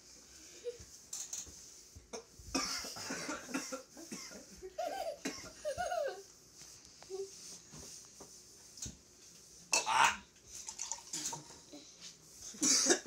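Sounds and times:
man coughing and sputtering: 0:02.2 - 0:04.4, 0:12.6 - 0:13.0.

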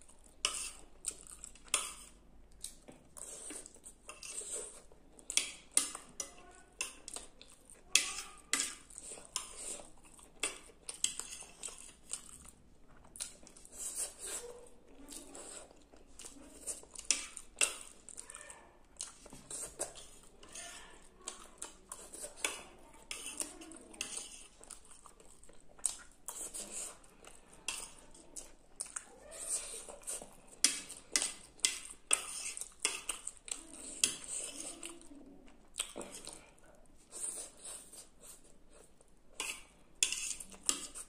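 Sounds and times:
chewing: 0:00.0 - 0:41.0
fork scraping a plate: 0:00.4 - 0:00.8, 0:03.2 - 0:07.3, 0:07.9 - 0:12.3, 0:13.4 - 0:14.5, 0:19.1 - 0:25.0, 0:26.3 - 0:28.2, 0:29.3 - 0:35.0, 0:37.1 - 0:41.0.

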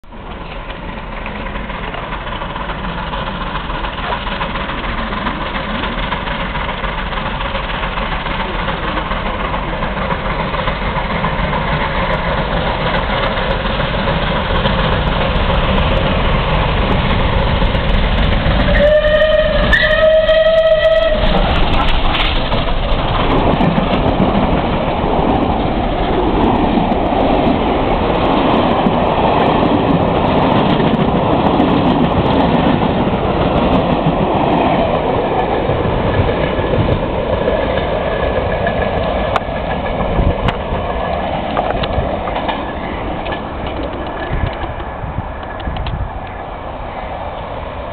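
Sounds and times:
steam train passing: 0:00.0 - 0:47.9
wheel clatter: 0:00.3 - 0:46.3
steam whistle: 0:18.6 - 0:21.3.

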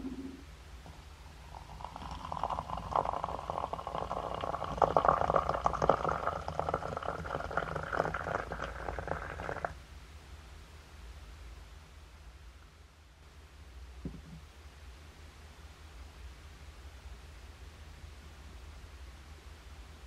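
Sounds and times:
water pouring into glass teapot: 0:00.9 - 0:09.7.

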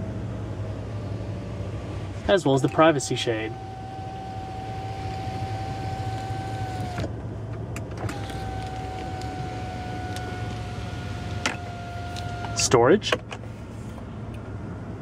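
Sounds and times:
electric motor whining: 0:02.8 - 0:07.1, 0:08.0 - 0:12.8.

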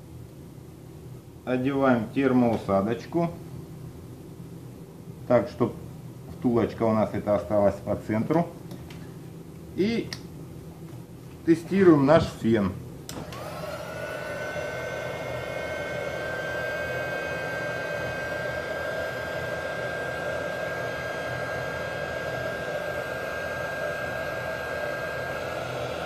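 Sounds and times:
heat gun blowing air: 0:13.1 - 0:26.0
high motor whine: 0:13.1 - 0:26.0.

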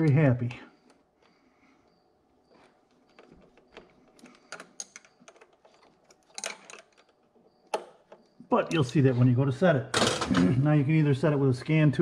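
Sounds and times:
screwdriver and metal parts clicking: 0:02.6 - 0:08.9.

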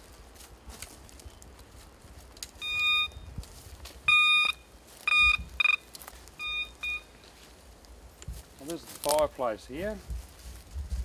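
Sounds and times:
metal detector beeping: 0:02.6 - 0:03.4, 0:04.1 - 0:07.2.

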